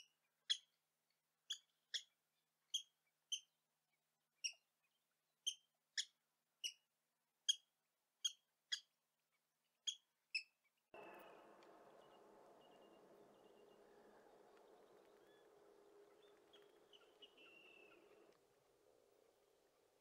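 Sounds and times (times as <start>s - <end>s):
outdoor background noise: 0.0s - 20.0s
sharp bird call notes: 11.0s - 18.3s.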